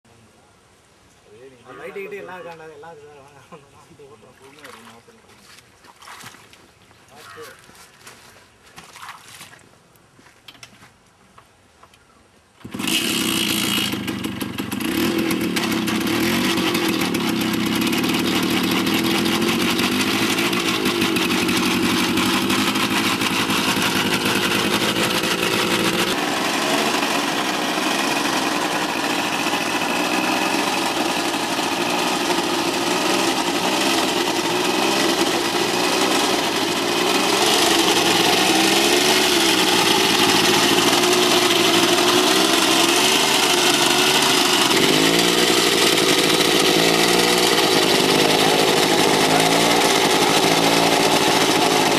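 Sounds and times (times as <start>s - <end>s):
engine starting and running: 12.6s - 51.9s.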